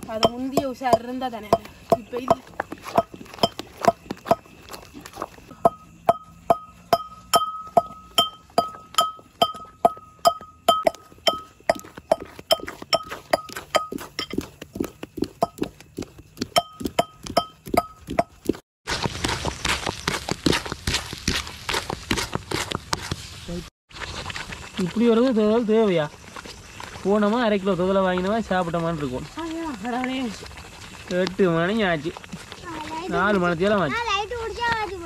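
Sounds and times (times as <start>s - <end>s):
wooden paddle knocking metal pot: 0.0s - 4.0s, 5.6s - 14.8s, 15.4s - 15.7s, 16.5s - 18.5s.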